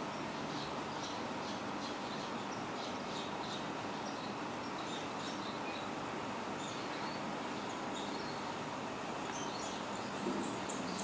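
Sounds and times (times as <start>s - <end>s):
steady background hiss: 0.0s - 11.0s
nestlings begging chirps: 9.2s - 11.0s.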